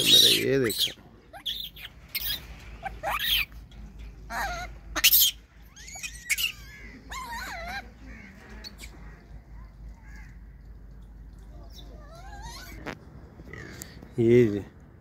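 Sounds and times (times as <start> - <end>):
monkey calls: 0.0 - 3.5, 4.3 - 9.0.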